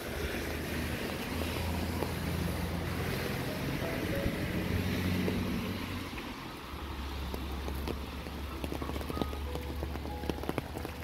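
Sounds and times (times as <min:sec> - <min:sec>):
falling rain hiss: 0:00.0 - 0:11.0
soft background music: 0:03.2 - 0:05.4, 0:08.5 - 0:11.0.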